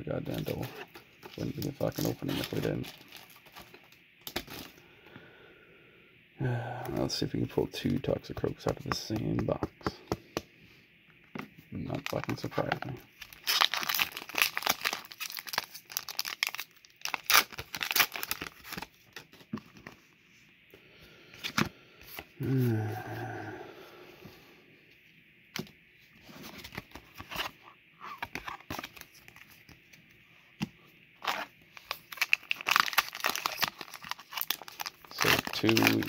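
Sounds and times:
foil wrappers crinkling and tearing: 0.3 - 4.8, 11.9 - 19.4, 28.1 - 29.7, 31.2 - 36.0.

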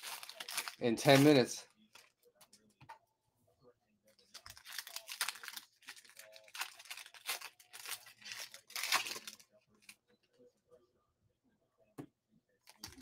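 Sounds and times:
foil pack tearing and crinkling: 0.0 - 1.5, 4.4 - 9.4.

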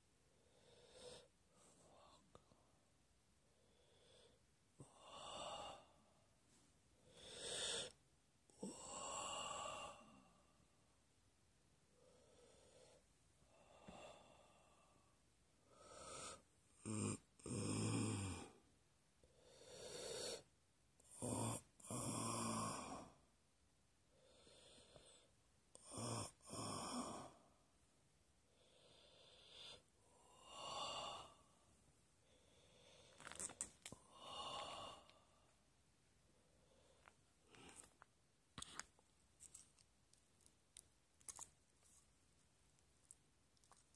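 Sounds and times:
person breathing heavily: 3.6 - 6.2, 7.0 - 8.0, 12.0 - 16.5, 24.1 - 25.3, 28.5 - 31.6, 32.2 - 35.5.

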